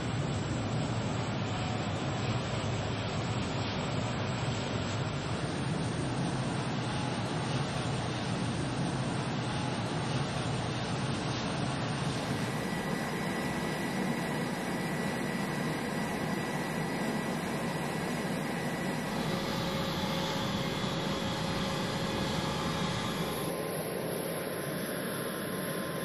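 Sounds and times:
faint steady whine: 0:00.0 - 0:26.0
jet engine rush: 0:11.9 - 0:26.0.

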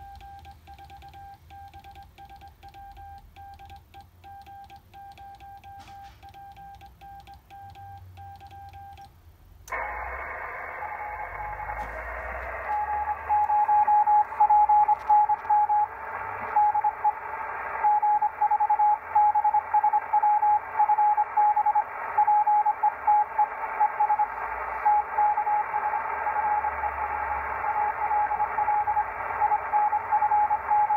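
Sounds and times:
morse code reply beeps: 0:00.0 - 0:09.1, 0:12.6 - 0:15.9, 0:16.5 - 0:17.2, 0:17.8 - 0:30.9
morse code sidetone beeps: 0:00.0 - 0:09.1, 0:12.6 - 0:17.2, 0:17.8 - 0:30.9
radio band noise hiss: 0:09.7 - 0:18.0, 0:21.8 - 0:30.7.

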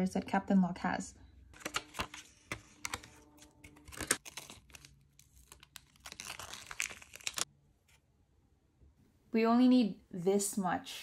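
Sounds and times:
packaging clicks: 0:01.6 - 0:07.4
plastic wrapper crinkling: 0:01.6 - 0:07.5.

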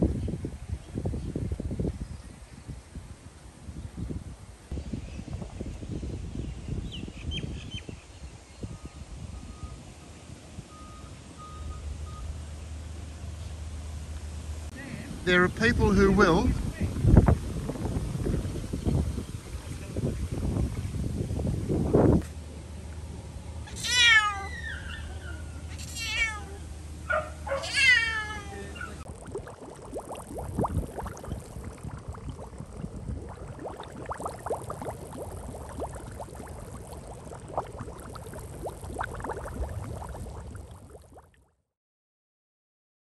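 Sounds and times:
cat meowing loudly: 0:23.7 - 0:25.0, 0:25.7 - 0:26.6, 0:27.5 - 0:28.9
water lapping against rock: 0:28.8 - 0:41.2.

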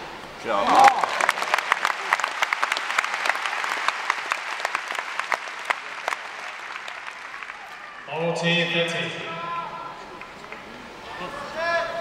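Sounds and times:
crowd applauding: 0:00.6 - 0:08.2.

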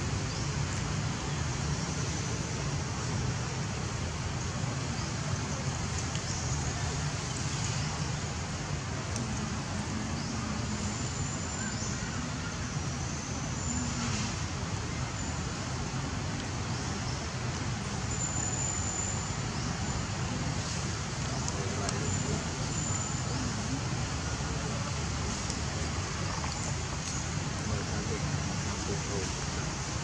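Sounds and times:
outdoor background rumble and hiss: 0:00.0 - 0:30.0.

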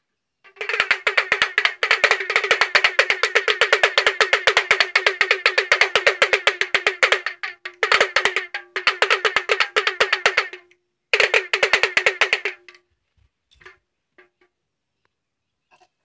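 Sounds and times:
fast pitched drumming: 0:00.5 - 0:12.8.

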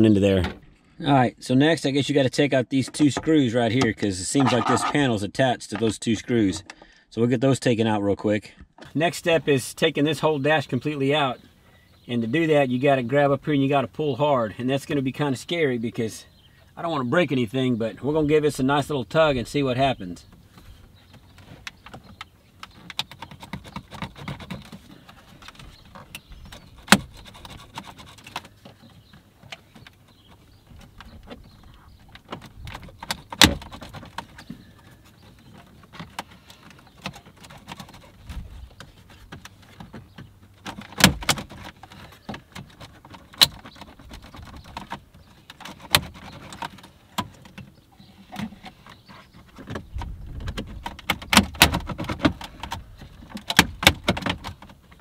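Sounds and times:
plastic trim rattling and creaking: 0:02.8 - 0:06.9, 0:18.1 - 0:55.0.

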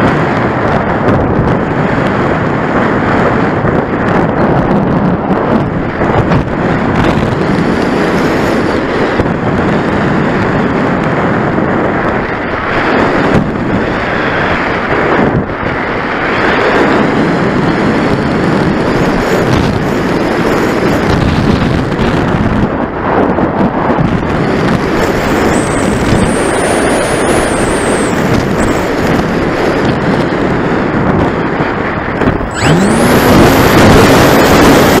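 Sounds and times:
wind on microphone: 0:00.0 - 0:35.0
electric motor whine: 0:25.1 - 0:29.1, 0:32.3 - 0:35.0.

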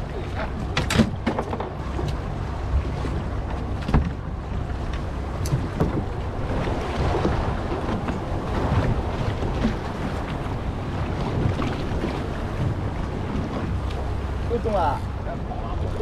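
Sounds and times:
water washing against boat hull: 0:00.0 - 0:16.0
wind buffeting microphone: 0:00.0 - 0:16.0.

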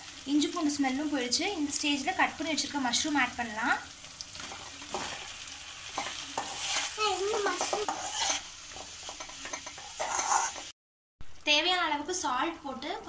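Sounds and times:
frying oil sizzling: 0:00.0 - 0:13.0
metal ladle scraping a pan: 0:04.4 - 0:10.7.

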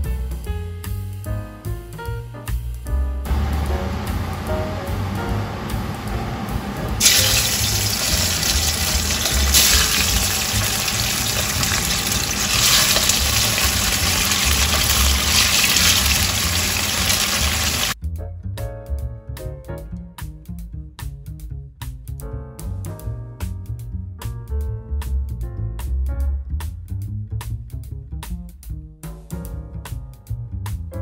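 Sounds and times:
soft background music: 0:00.0 - 0:16.1
fish sizzling in hot oil: 0:07.0 - 0:18.0.

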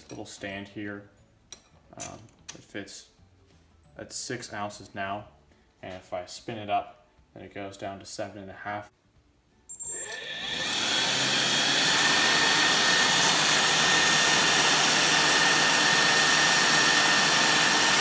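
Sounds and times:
electric fan whining and rushing: 0:09.9 - 0:18.0.

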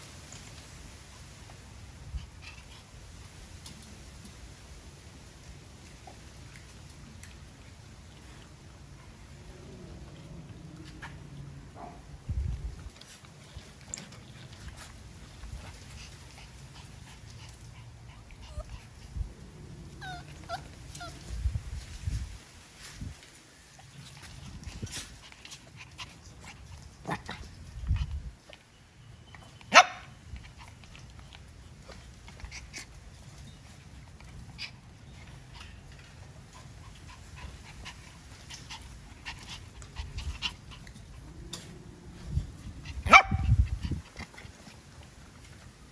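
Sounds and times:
puppies panting: 0:13.0 - 0:21.3, 0:30.3 - 0:45.7
puppy whimpering: 0:18.2 - 0:19.0, 0:19.8 - 0:21.4.

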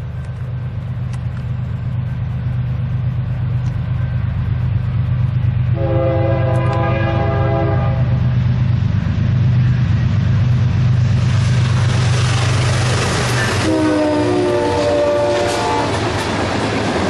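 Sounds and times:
diesel locomotive engines droning: 0:00.0 - 0:17.0
wheel and rail noise: 0:00.0 - 0:17.0
train air horn chord: 0:05.7 - 0:08.3, 0:13.6 - 0:16.0.

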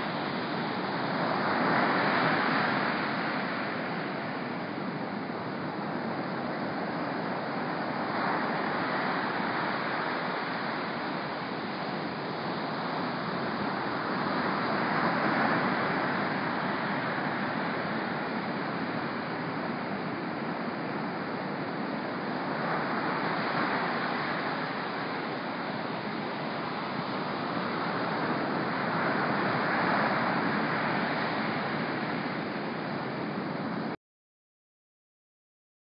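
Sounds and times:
ocean waves breaking: 0:00.0 - 0:33.9.

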